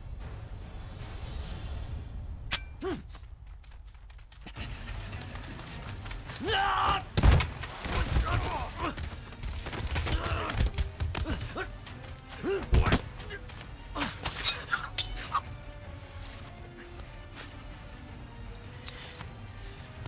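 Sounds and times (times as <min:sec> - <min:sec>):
punches and bodies hitting ground: 0:05.9 - 0:14.4
fighters grunting: 0:07.9 - 0:09.3, 0:10.0 - 0:11.8, 0:12.4 - 0:15.5.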